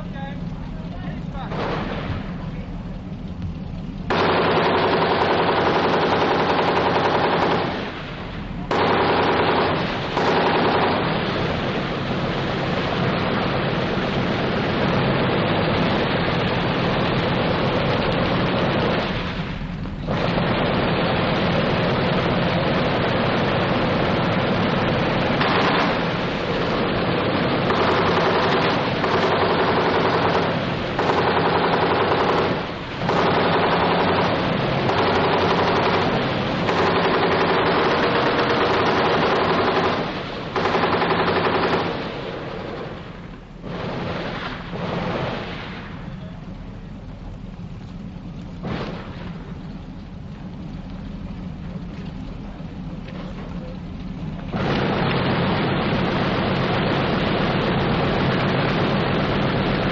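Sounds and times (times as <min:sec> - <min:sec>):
rapid machine-gun fire: 0:01.5 - 0:02.2, 0:04.1 - 0:08.0, 0:08.7 - 0:19.3, 0:20.1 - 0:42.8, 0:54.6 - 0:59.9.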